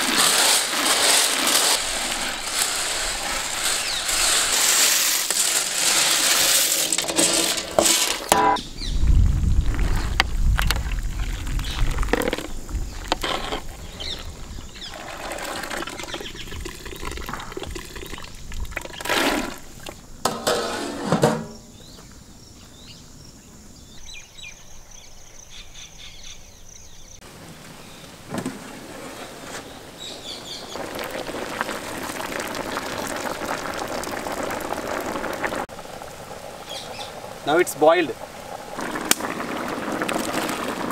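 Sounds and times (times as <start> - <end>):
water boiling and bubbling: 0.0 - 8.4, 9.0 - 20.3, 29.7 - 40.9.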